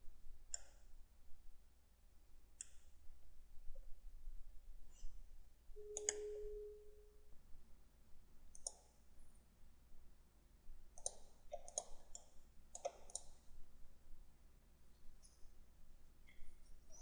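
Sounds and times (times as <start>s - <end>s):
computer mouse clicking: 0.5s - 0.9s, 6.0s - 6.3s, 8.5s - 8.9s, 10.9s - 13.5s.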